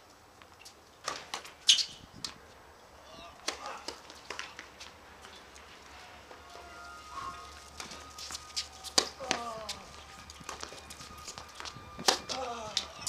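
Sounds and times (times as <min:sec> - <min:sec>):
tennis balls struck and bounced: 0:01.0 - 0:01.9, 0:03.3 - 0:04.8, 0:07.8 - 0:09.6, 0:10.4 - 0:12.9
short squeaks: 0:01.6 - 0:02.0.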